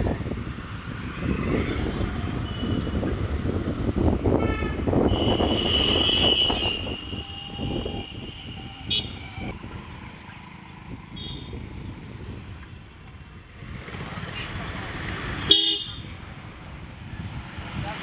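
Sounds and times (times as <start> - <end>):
motorcycles passing: 0.0 - 18.0
road traffic: 0.0 - 18.0
long high-pitched vehicle horn: 4.4 - 9.4.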